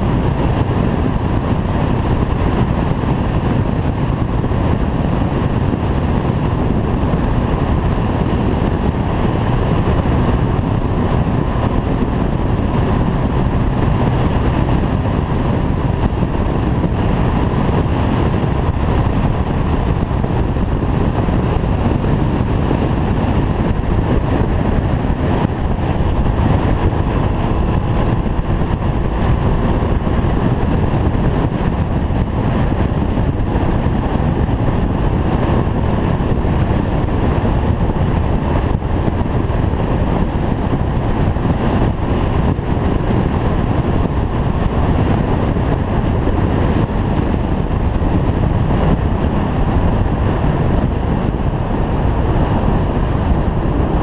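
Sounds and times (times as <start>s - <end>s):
motorcycle engine cruising: 0.0s - 54.0s
wind noise on microphone: 0.0s - 54.0s.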